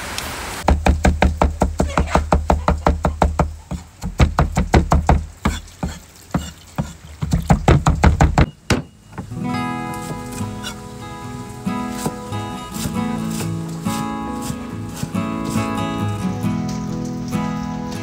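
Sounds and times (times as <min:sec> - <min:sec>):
cleaver chopping on wooden block: 0:00.6 - 0:09.3, 0:12.8 - 0:15.7.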